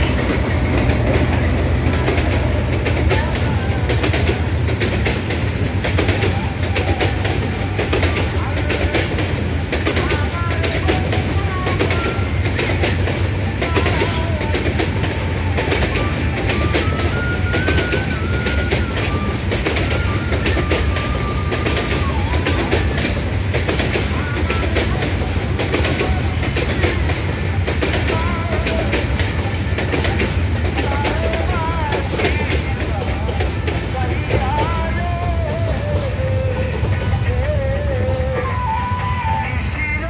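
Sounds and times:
wheels clicking over rail joints: 0.0 - 39.4
freight train rumbling past: 0.0 - 40.0
wavering high squeal: 13.6 - 29.6, 33.8 - 40.0.

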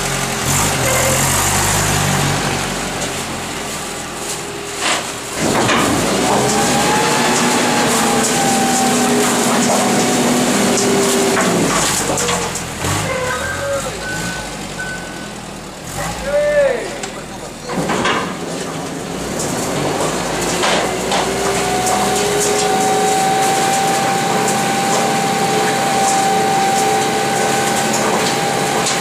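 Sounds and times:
packing mechanism whine: 0.0 - 15.4, 17.6 - 29.0
garbage truck engine running: 0.0 - 29.0.

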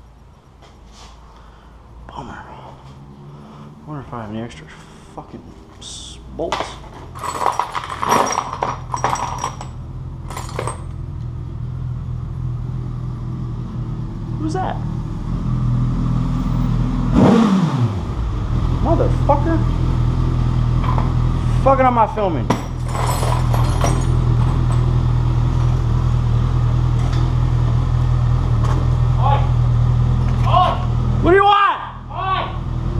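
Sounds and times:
metal hardware clattering: 6.5 - 11.0, 22.5 - 25.0
vehicle engine idling: 8.8 - 17.0, 18.0 - 32.9.

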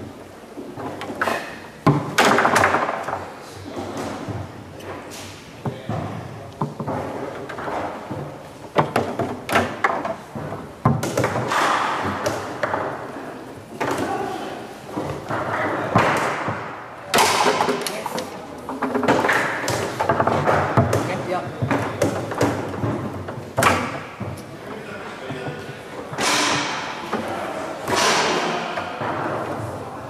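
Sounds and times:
foosball knocks and clacks: 0.8 - 3.3, 5.6 - 13.2, 15.0 - 24.4.

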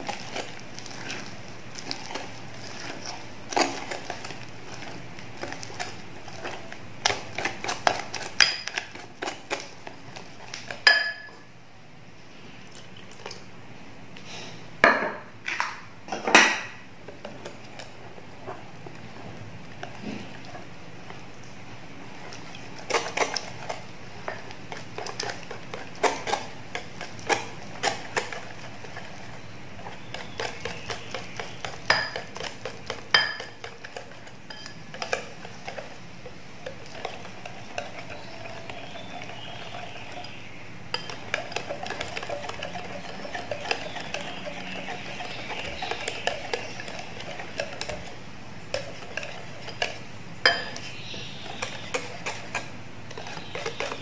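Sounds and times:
wet swishing of batter: 0.0 - 10.9, 17.4 - 50.2, 50.8 - 54.0
whisk clinking against glass bowl: 10.7 - 11.4, 29.9 - 36.0, 40.9 - 54.0.

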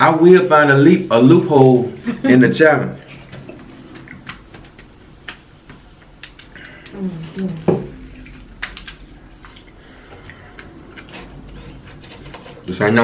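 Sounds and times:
chewing fried chicken: 3.4 - 12.6
lip smacks: 6.0 - 7.0, 8.0 - 11.1.

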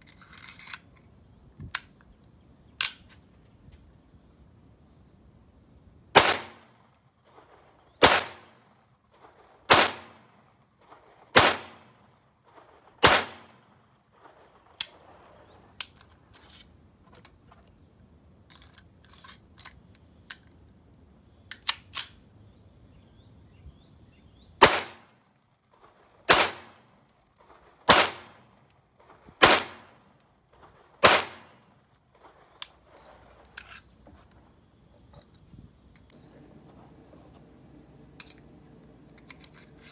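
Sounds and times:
pistol shots: 6.2 - 8.8, 9.7 - 10.4, 11.3 - 12.1, 13.0 - 13.8, 24.6 - 25.2, 26.3 - 26.9, 27.8 - 28.6, 29.4 - 32.8.

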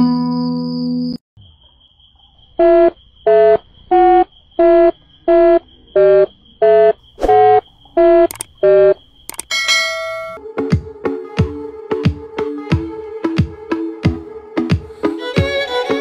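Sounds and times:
buzzy beeps: 2.6 - 9.4.

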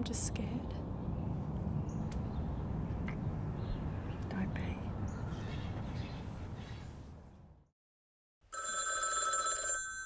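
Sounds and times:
telephone ringing: 8.5 - 10.0.

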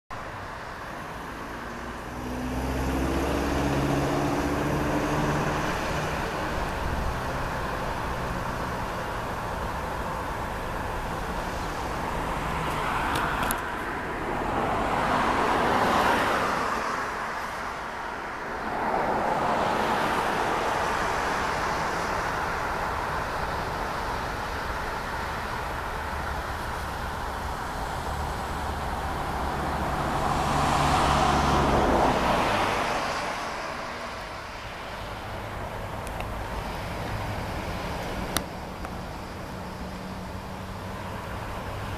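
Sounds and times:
cars passing: 0.1 - 41.9.

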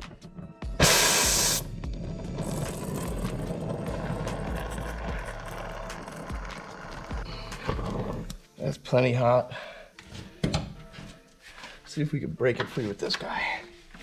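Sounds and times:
gas torch hissing: 0.8 - 10.0
torch flame rushing: 2.2 - 7.2.

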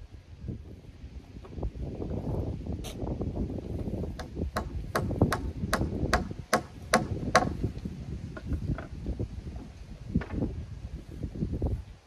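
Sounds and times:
hammer striking timber beam: 4.1 - 7.6.

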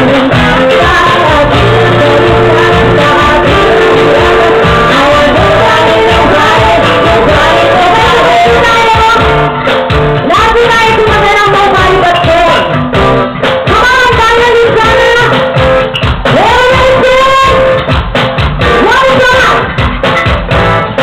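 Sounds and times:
women singing: 0.0 - 9.5, 10.2 - 12.7
live band music: 0.0 - 21.0.

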